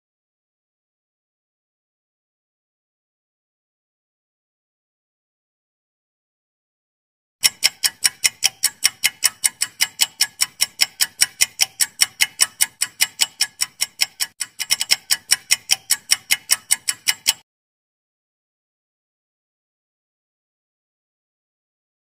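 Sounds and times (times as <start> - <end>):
rapid high-pitched clock ticks: 7.4 - 17.4.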